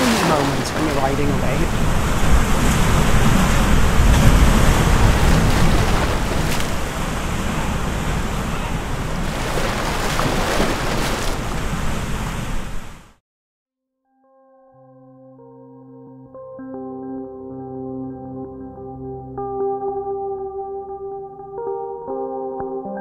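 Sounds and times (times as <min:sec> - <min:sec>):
surf breaking: 0:00.0 - 0:13.1.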